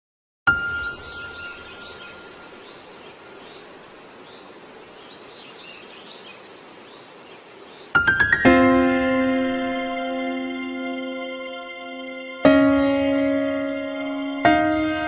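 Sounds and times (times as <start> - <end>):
faint bird chirps: 0.5 - 8.1
outdoor background noise: 0.5 - 15.0.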